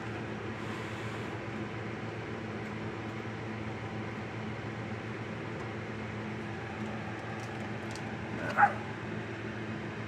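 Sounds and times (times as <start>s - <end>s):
background hum: 0.0s - 10.0s
high yip: 8.4s - 8.8s.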